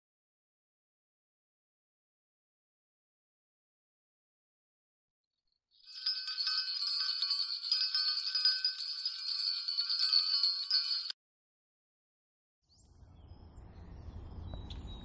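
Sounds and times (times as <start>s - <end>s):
alarm clock bell ringing: 5.8s - 11.2s.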